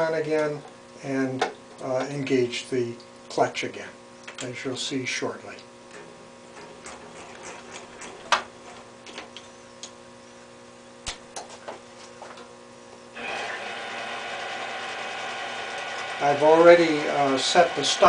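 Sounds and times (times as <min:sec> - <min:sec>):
lathe gear train whirring: 0:13.2 - 0:18.0.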